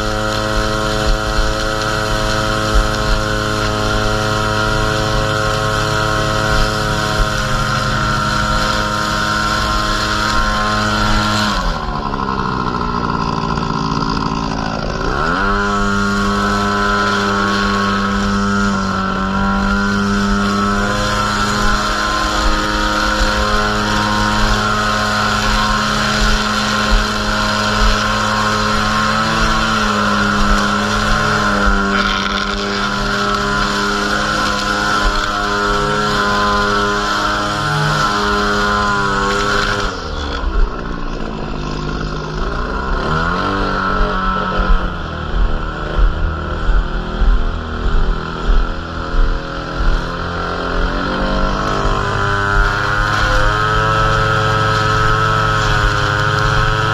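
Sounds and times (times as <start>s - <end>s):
string trimmer engine running: 0.0s - 56.9s.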